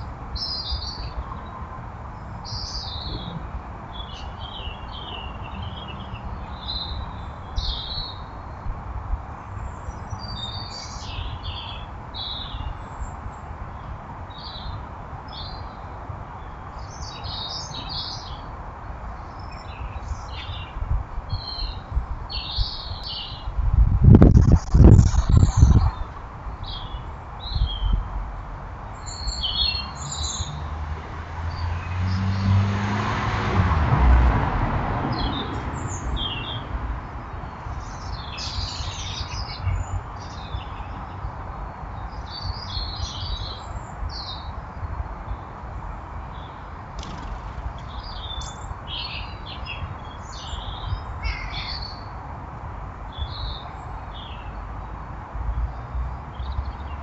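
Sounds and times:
small birds chirping: 0.0 - 8.7, 9.5 - 18.5, 19.1 - 28.1, 28.9 - 30.7, 35.1 - 52.2, 53.1 - 54.6
vehicle passing: 29.8 - 37.7.

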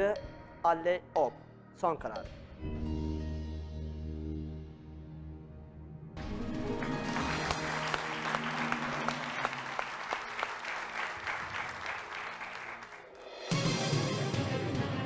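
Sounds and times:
game show music: 6.2 - 15.0
studio audience applauding: 6.4 - 13.5.

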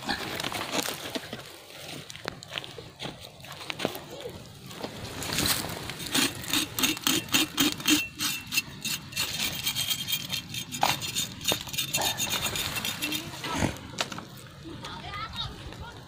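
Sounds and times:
knife scraping hide: 5.2 - 13.9.

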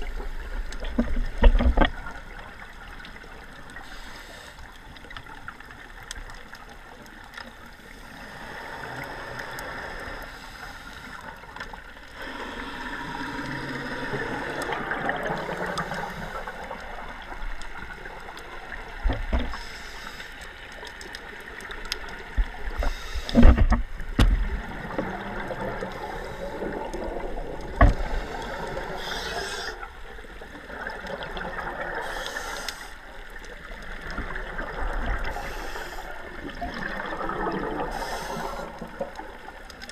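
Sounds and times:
underwater regulator bubbles: 21.4 - 39.5.

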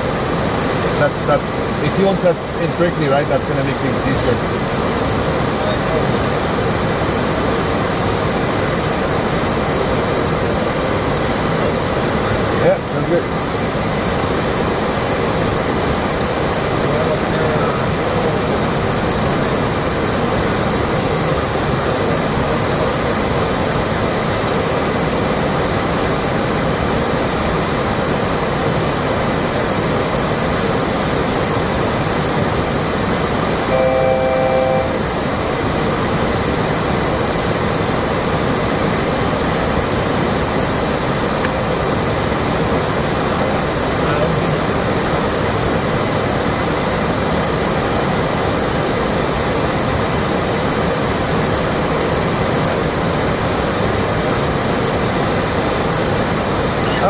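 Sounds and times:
airflow and engine noise: 0.0 - 57.0.

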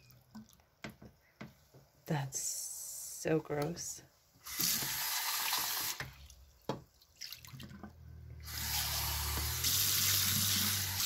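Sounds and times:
faucet water running: 4.4 - 6.2, 8.4 - 11.0.

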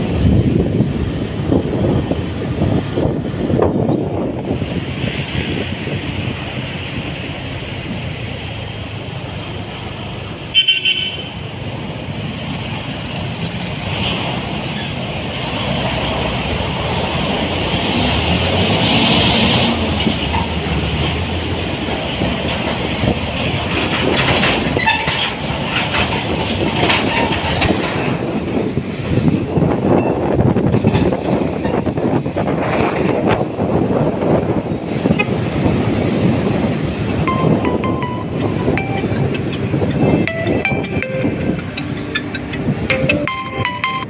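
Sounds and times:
motorcycle engine and wind noise: 0.0 - 7.2, 25.9 - 41.7
passing trucks: 0.0 - 44.0
vehicle horn toot: 10.5 - 11.4.

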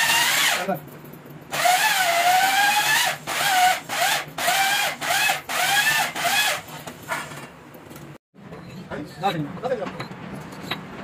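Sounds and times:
electric drill whining: 1.5 - 6.7.

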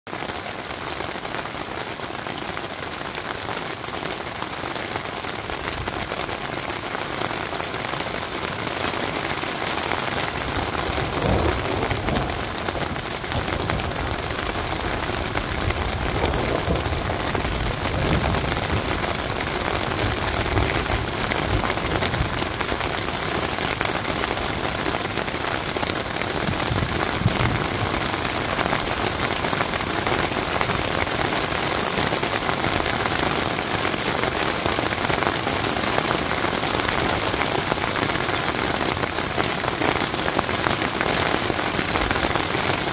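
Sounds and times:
rain on tent fabric: 0.1 - 42.9
thunder rumbling: 10.4 - 24.7, 25.8 - 31.0.

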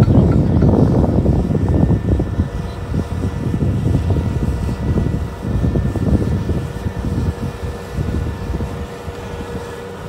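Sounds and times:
diesel engine rumbling: 0.0 - 4.5
faint steady whine: 0.0 - 10.0.

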